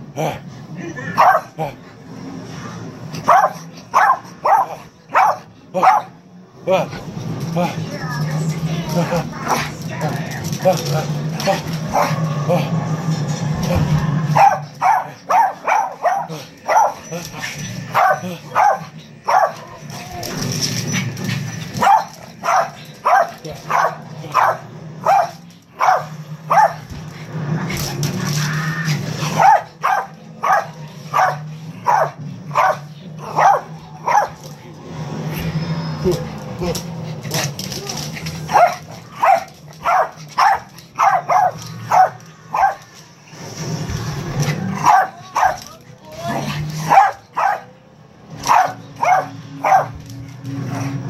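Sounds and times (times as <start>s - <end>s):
small dog barking: 1.2s - 1.5s, 3.2s - 6.1s, 14.4s - 17.1s, 17.9s - 19.6s, 21.8s - 26.8s, 29.4s - 34.4s, 38.5s - 42.8s, 44.8s - 45.6s, 46.9s - 47.7s, 48.5s - 50.0s.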